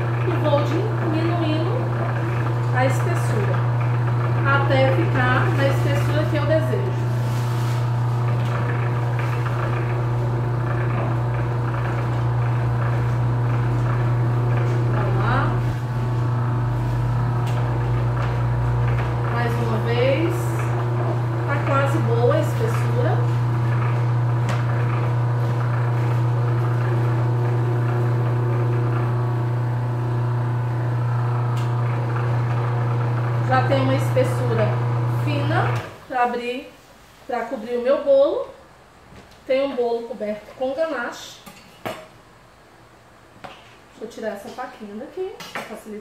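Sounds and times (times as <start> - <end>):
electric motor humming: 0.0 - 36.0.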